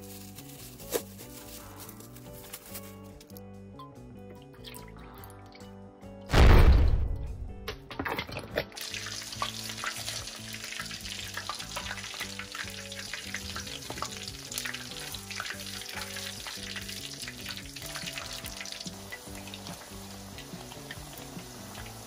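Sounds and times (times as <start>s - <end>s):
chicken deep-frying in oil: 8.5s - 22.0s.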